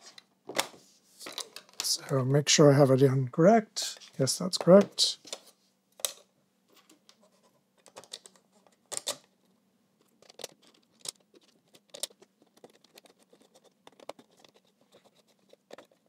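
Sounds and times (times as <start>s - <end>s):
plastic pieces clicking and tapping: 7.8s - 9.2s, 10.1s - 14.6s.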